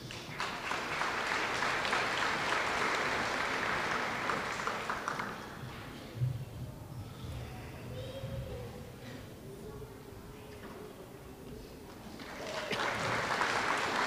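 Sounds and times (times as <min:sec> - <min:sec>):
audience clapping: 0:00.0 - 0:05.9, 0:12.0 - 0:14.0.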